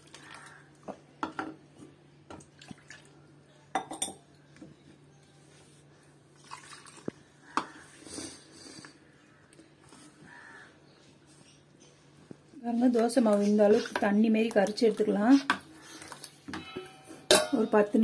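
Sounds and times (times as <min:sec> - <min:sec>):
cup and bowl clinking: 0:03.7 - 0:04.3
water pouring: 0:06.4 - 0:07.2.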